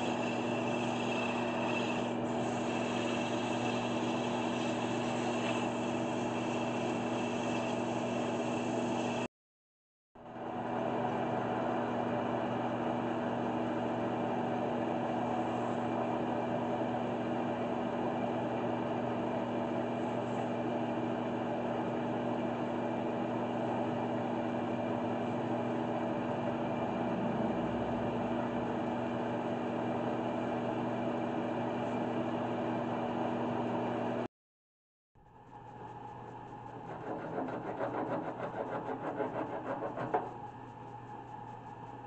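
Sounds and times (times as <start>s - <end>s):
wood lathe motor humming: 0.0s - 9.3s, 36.6s - 40.5s.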